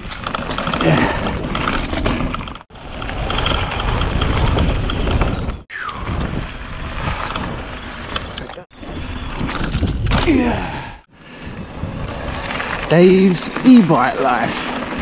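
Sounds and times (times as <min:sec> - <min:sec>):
bike rattling: 0:00.0 - 0:15.0
bike tyres rumbling on dirt: 0:00.0 - 0:15.0
wind on microphone: 0:02.9 - 0:13.0.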